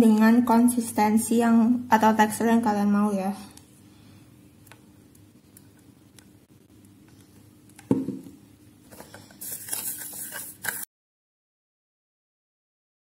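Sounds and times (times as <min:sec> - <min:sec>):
dull knock on tabletop: 0:07.9 - 0:08.3.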